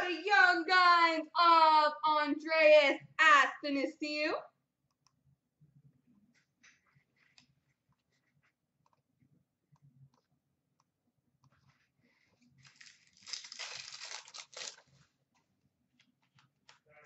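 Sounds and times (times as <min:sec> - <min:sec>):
foil wrapper crinkling and tearing: 0:12.6 - 0:15.0.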